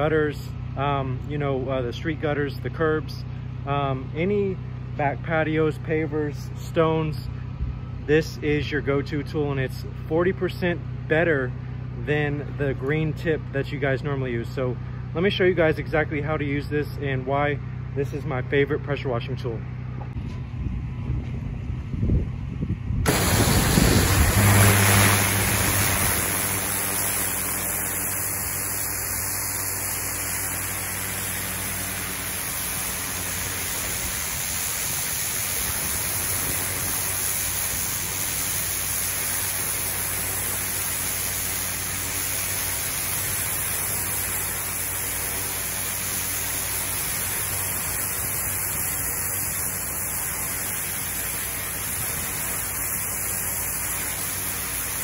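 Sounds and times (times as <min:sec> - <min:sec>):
low hum: 0:19.6 - 0:37.4
pressure washer spraying concrete: 0:23.1 - 0:55.0.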